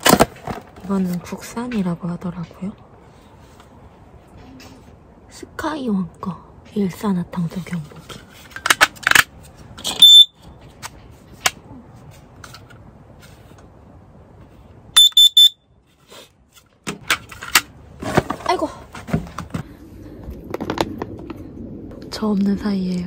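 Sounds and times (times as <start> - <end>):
alarm beeping: 15.0 - 15.6.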